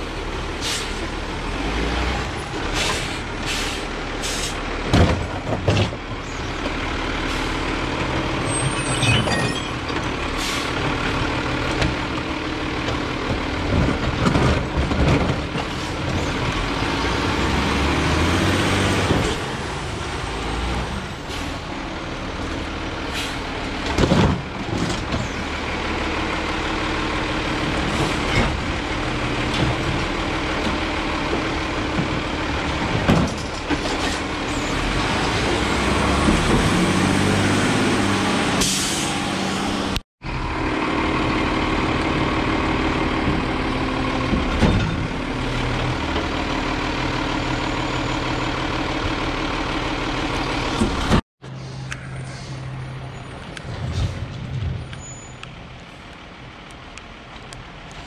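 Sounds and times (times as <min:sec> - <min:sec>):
garbage truck engine running: 0:00.0 - 0:58.0
air brake hiss: 0:00.6 - 0:01.0, 0:02.8 - 0:04.6, 0:23.1 - 0:23.4, 0:38.6 - 0:39.2, 0:51.4 - 0:52.7.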